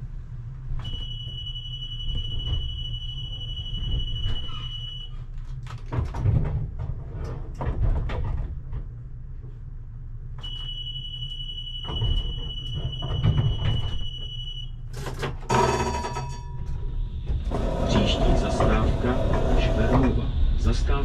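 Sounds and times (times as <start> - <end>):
constant low hum: 0.0 - 21.0
knocking and rattling: 5.6 - 9.0.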